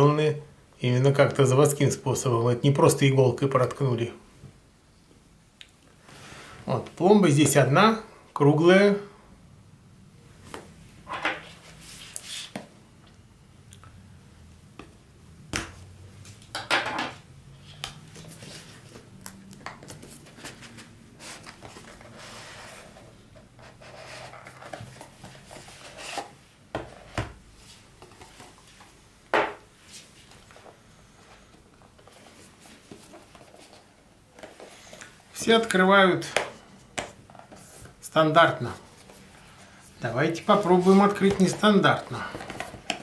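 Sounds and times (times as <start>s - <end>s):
box rubbing and scraping: 20.1s - 27.2s.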